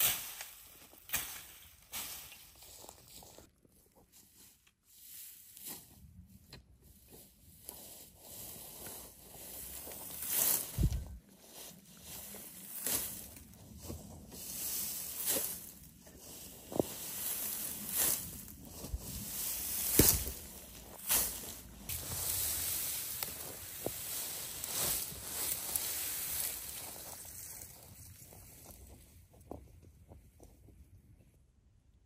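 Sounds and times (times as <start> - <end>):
dry grass rustling and crunching: 0.0 - 29.6
dull thuds: 19.8 - 21.5.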